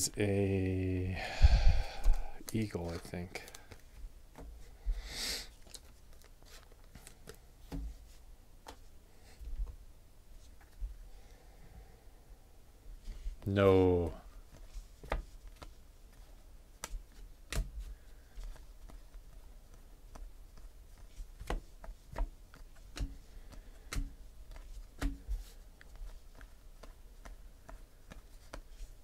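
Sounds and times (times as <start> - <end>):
cards being dealt: 1.9 - 4.5.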